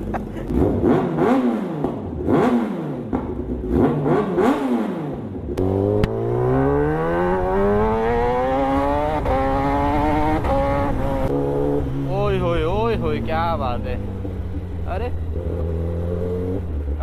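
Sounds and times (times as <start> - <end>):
motorcycle accelerating: 0.0 - 17.0
motorcycle engine revving: 0.0 - 17.0.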